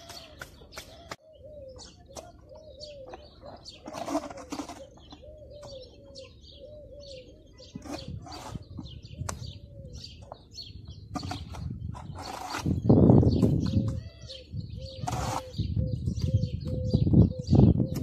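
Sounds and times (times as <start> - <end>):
small birds chirping: 0.0 - 18.0
dove cooing: 0.9 - 10.4, 13.6 - 18.0
trowel scraping mortar in bucket: 3.6 - 5.2, 7.7 - 8.9, 11.1 - 13.8, 15.0 - 15.6.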